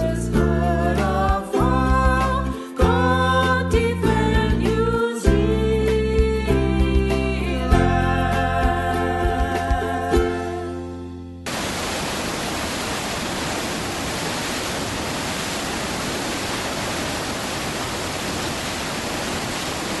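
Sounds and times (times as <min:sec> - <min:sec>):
static hiss: 0:11.5 - 0:20.0.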